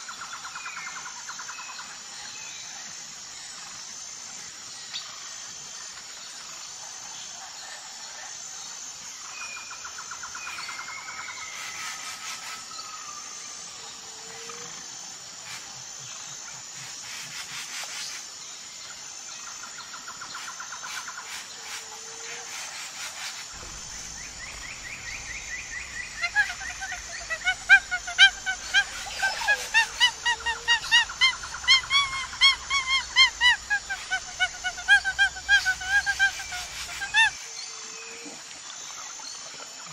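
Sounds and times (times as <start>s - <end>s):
insect buzz: 0.0s - 39.9s
baboons calling: 23.6s - 37.4s
bird trills and chirps: 23.6s - 37.4s.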